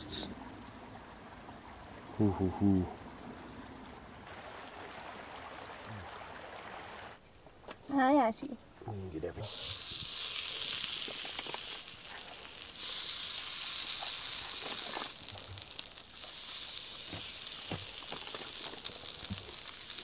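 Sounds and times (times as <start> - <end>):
pan sizzling: 9.4 - 20.0.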